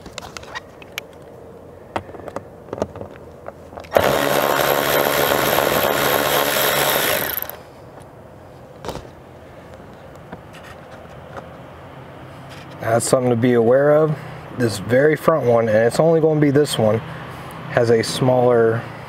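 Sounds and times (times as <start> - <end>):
power driver spinning: 3.8 - 7.6.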